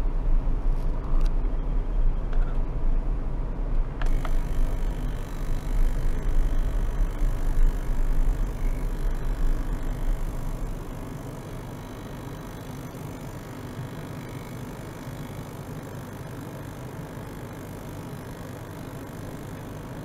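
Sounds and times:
ultrasonic cleaner humming: 0:04.0 - 0:20.0.

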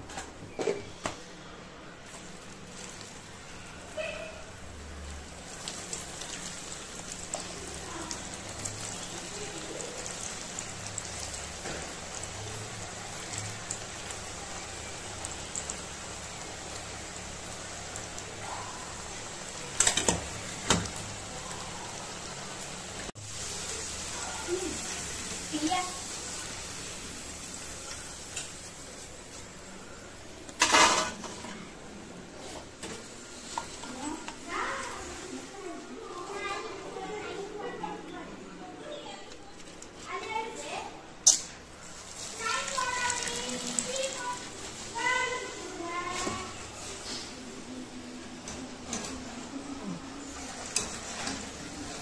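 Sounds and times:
potatoes sizzling in hot oil: 0:02.0 - 0:31.4, 0:33.1 - 0:36.4, 0:41.2 - 0:47.6, 0:50.2 - 0:52.0.

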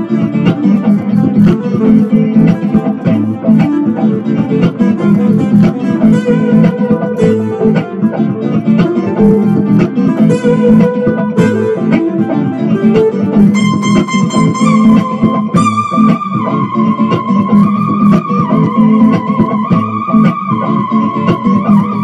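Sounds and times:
guitar-led music: 0:00.0 - 0:22.0
sustained high notes: 0:13.4 - 0:18.0.

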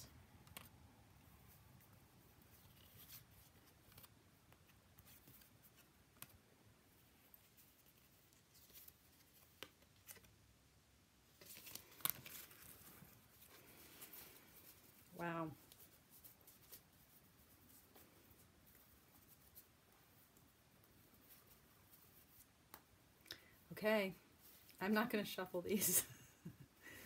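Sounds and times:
cards clicking and rustling: 0:00.4 - 0:00.8, 0:02.5 - 0:06.4, 0:07.4 - 0:10.4, 0:11.4 - 0:14.9.

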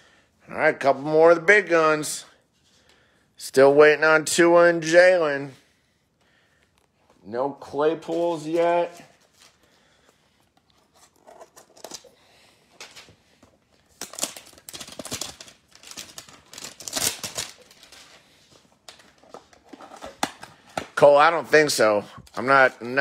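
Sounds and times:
wrappers crinkling and tearing: 0:13.7 - 0:20.3.

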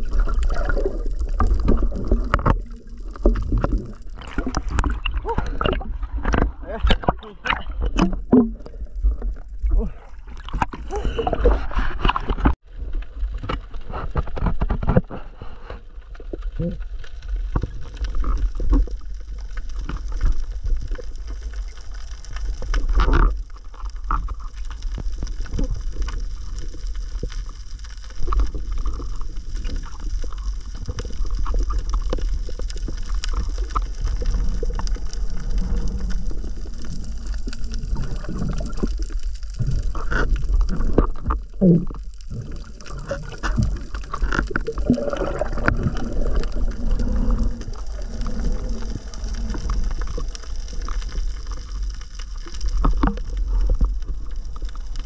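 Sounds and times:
underwater rumble: 0:00.0 - 0:55.0.

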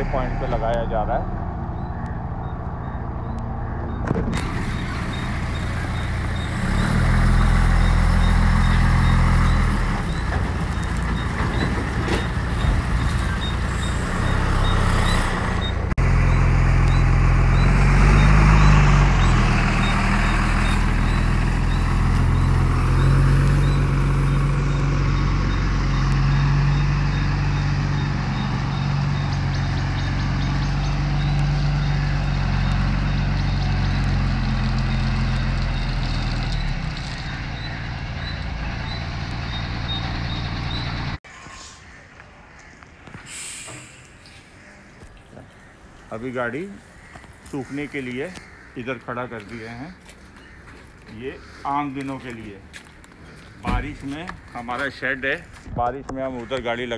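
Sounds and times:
truck diesel engine running: 0:04.3 - 0:41.2
high reversing beep: 0:12.6 - 0:23.9.

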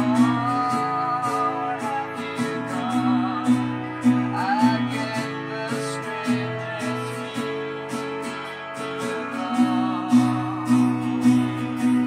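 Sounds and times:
acoustic guitar strumming: 0:00.0 - 0:12.0
gliding melody line: 0:00.0 - 0:12.0.

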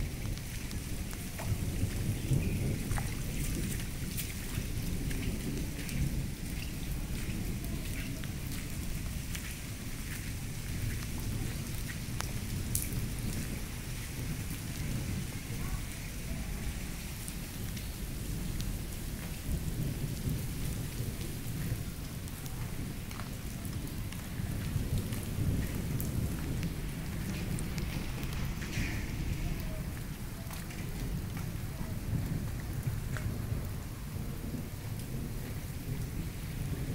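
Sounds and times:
rain on paving and foliage: 0:00.0 - 0:36.9
water drip ticks: 0:00.1 - 0:15.0, 0:17.2 - 0:29.0, 0:29.6 - 0:36.7
low rumble: 0:23.6 - 0:34.1.

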